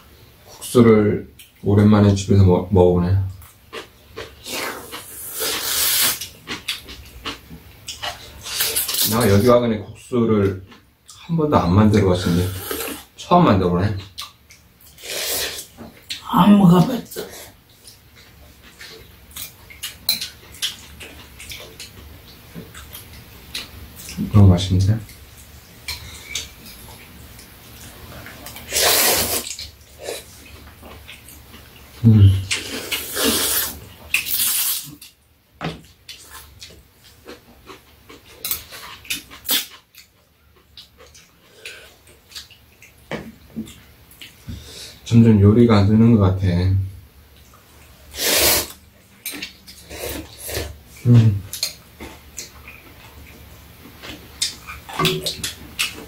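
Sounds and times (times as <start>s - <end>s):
person slurping noodles: 4.4s - 6.2s, 12.4s - 13.1s, 15.0s - 15.7s, 28.7s - 30.2s, 32.3s - 34.8s, 48.2s - 48.8s.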